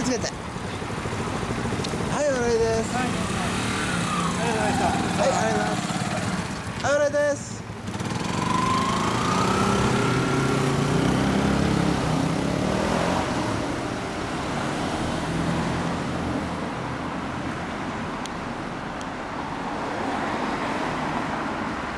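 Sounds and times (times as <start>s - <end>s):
motorcycle engines revving: 0.0s - 17.4s
street traffic noise: 0.0s - 21.9s.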